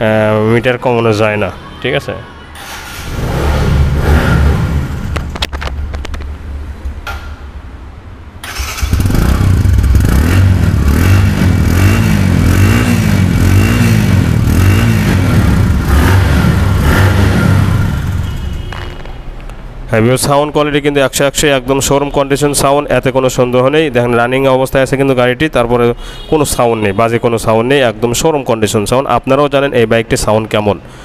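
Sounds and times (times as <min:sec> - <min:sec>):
motorcycle engine revving: 0:02.7 - 0:05.5, 0:08.4 - 0:18.7.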